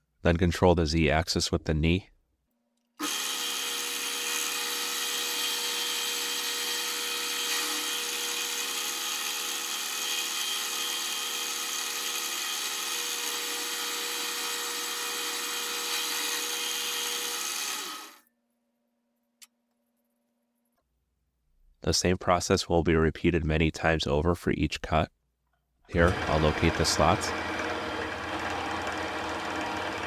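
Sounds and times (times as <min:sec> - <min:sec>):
milling machine cutting metal: 0:03.0 - 0:18.2, 0:26.0 - 0:30.0.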